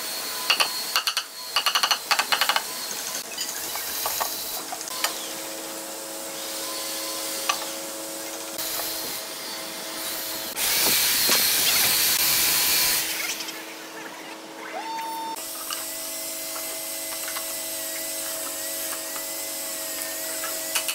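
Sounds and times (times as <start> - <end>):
loud hiss: 10.1 - 13.3.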